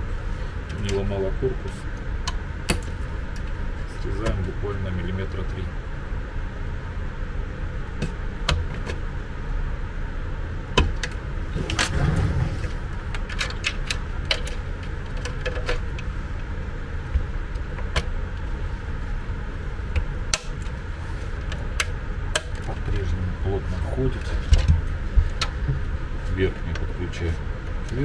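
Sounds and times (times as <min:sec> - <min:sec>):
low background hum: 0:00.0 - 0:28.0
short scrape: 0:11.6 - 0:12.9
plastic switch clicks: 0:20.0 - 0:20.6.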